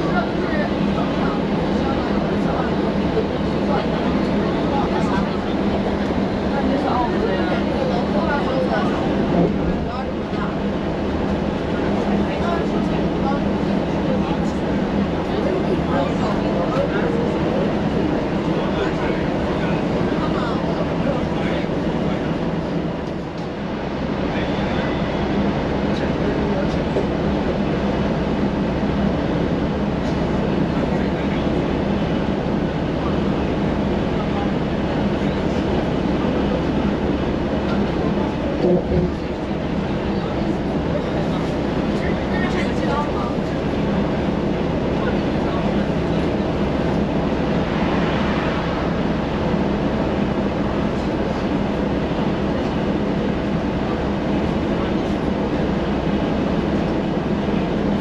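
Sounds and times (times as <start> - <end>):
faint voices: 0.0 - 58.0
moving vehicle rumble and hum: 0.0 - 58.0
vehicle rumble: 33.0 - 52.8.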